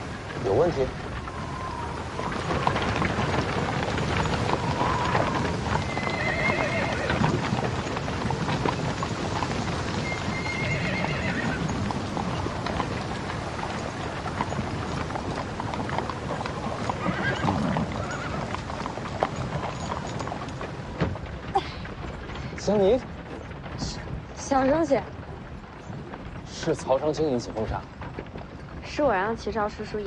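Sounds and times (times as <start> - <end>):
horse hooves clopping: 0.0 - 30.0
horses whinnying: 0.7 - 20.8.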